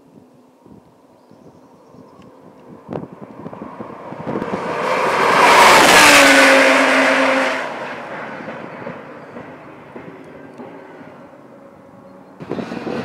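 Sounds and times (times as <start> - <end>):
race car passing at full speed: 2.3 - 10.0, 12.4 - 13.0.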